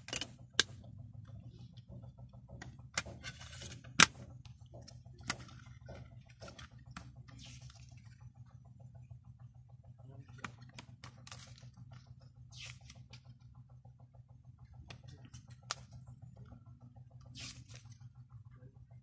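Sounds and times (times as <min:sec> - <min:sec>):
steady low hum: 0:00.0 - 0:19.0
paper pages turning: 0:06.9 - 0:08.2.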